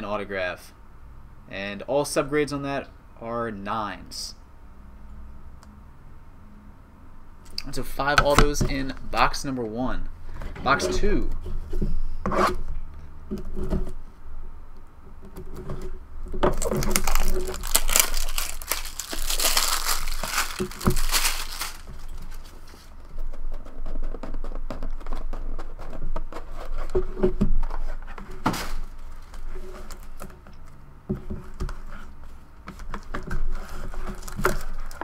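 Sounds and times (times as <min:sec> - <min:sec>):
plastic wrap crackling: 0:16.4 - 0:23.0, 0:32.9 - 0:35.0.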